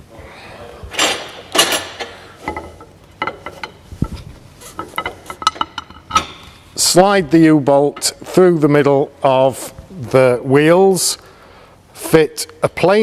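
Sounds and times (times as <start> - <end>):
metal scraping rustles: 1.0 - 6.7.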